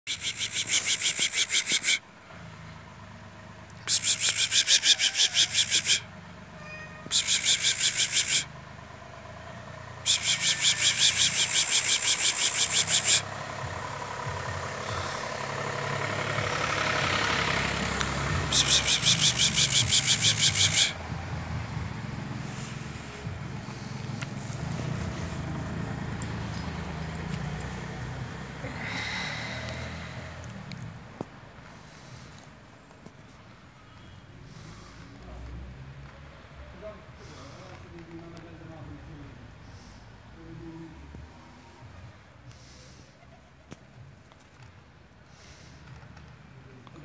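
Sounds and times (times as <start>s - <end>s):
low traffic hum: 0.0s - 47.0s
high-pitched pulsing trill: 0.1s - 2.0s, 3.9s - 6.0s, 7.1s - 8.5s, 10.1s - 13.2s, 18.5s - 21.0s.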